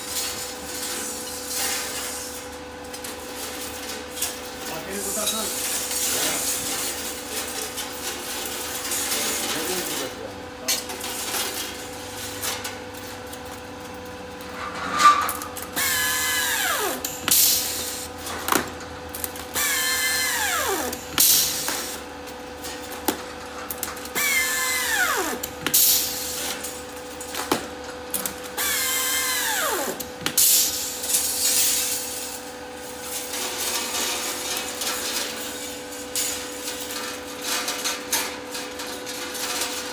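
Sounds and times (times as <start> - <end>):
pneumatic strapping tool whirring: 15.0 - 18.6, 19.3 - 22.0, 24.1 - 26.7, 28.2 - 32.4.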